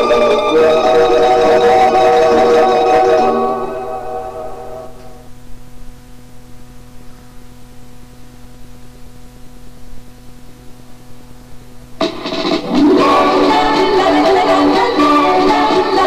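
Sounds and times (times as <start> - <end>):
music: 0.0 - 5.1, 12.0 - 16.0
electrical hum: 0.0 - 16.0
faint hiss: 3.5 - 16.0.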